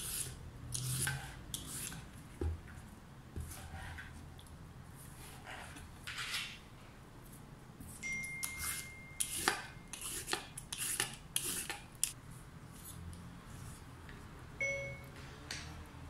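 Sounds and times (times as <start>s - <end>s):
peeler scraping cucumber skin: 9.2s - 12.2s.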